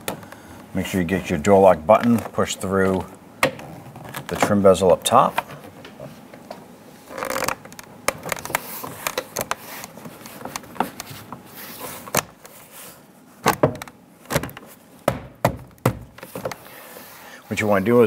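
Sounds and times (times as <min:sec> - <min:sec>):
plastic panel knocks and clicks: 0:13.5 - 0:16.6.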